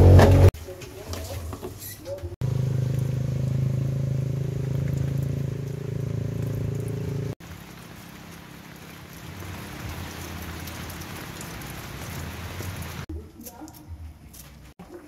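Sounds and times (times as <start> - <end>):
low engine hum: 2.4 - 13.0
raindrops pattering: 2.4 - 13.8
steady rain hiss: 7.4 - 13.1.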